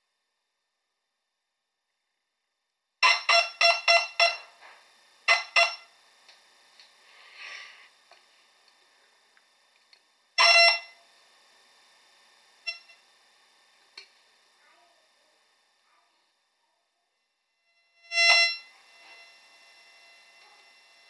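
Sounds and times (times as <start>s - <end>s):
metal detector beeps: 3.0s - 4.5s, 5.3s - 5.9s, 10.4s - 11.0s, 12.7s - 13.0s, 18.0s - 21.0s.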